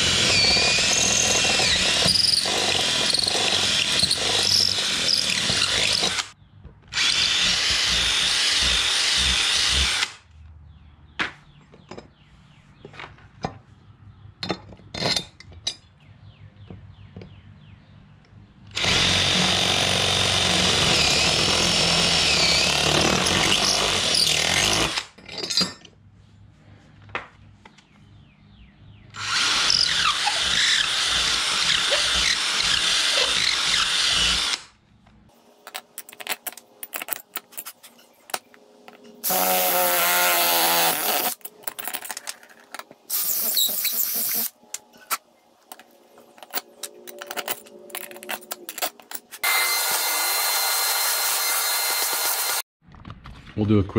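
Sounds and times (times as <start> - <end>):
cordless drill boring: 0.0 - 10.2, 18.7 - 25.0, 29.2 - 34.7, 39.2 - 41.4, 48.8 - 52.7.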